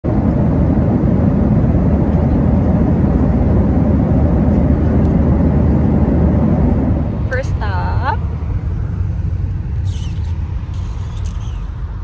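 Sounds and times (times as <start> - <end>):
airliner cabin rumble: 0.0 - 12.0.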